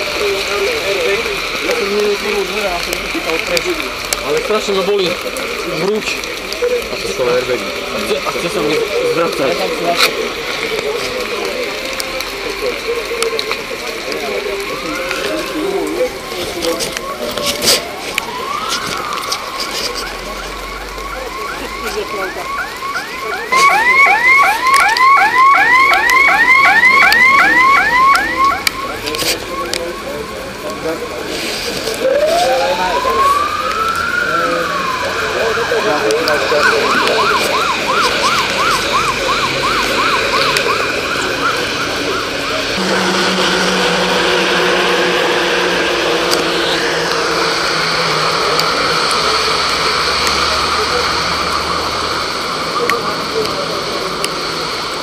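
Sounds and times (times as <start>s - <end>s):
car alarm siren whooping: 16.8s - 53.2s.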